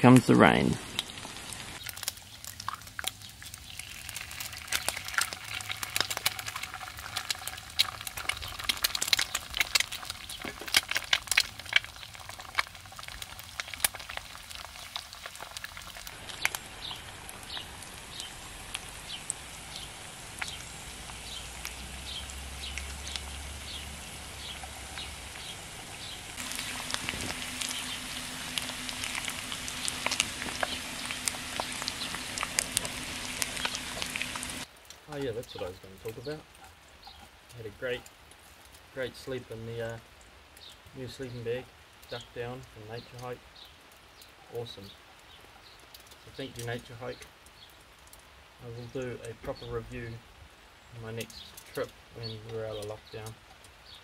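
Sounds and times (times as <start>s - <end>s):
raindrops pattering on tarp: 0.0s - 54.0s
light hiss: 13.6s - 36.6s
steady low hum: 16.2s - 34.6s.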